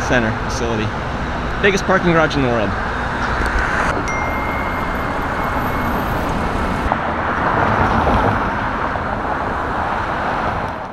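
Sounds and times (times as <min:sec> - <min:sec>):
road traffic noise: 0:00.0 - 0:10.9
faint high steady tone: 0:02.4 - 0:06.9.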